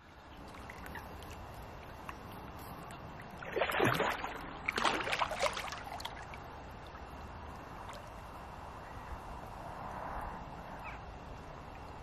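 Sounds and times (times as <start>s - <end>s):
fish splashing in shallow water: 0.4s - 7.2s.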